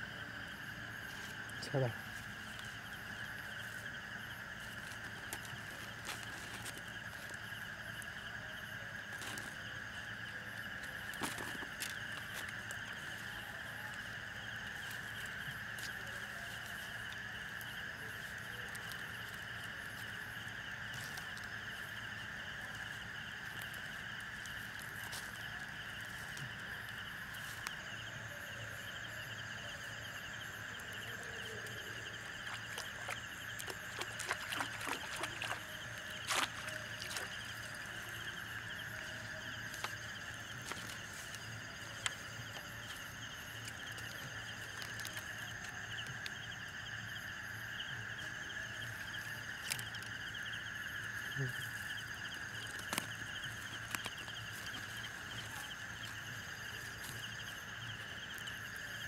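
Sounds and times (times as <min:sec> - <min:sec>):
insects and frogs chorus: 0:00.0 - 0:59.0.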